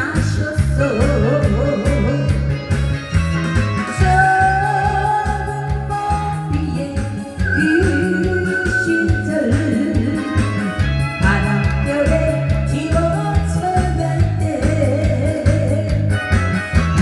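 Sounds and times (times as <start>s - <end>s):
woman singing into a microphone: 0.0s - 2.4s, 3.7s - 16.4s
backing track with bass beat: 0.0s - 17.0s.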